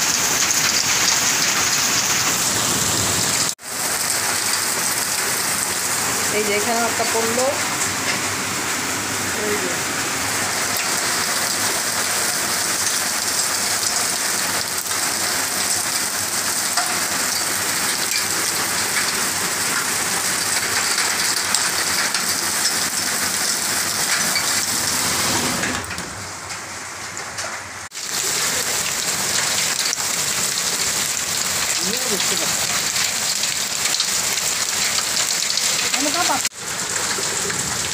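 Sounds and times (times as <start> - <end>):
heavy rain and hail: 0.0 - 37.9.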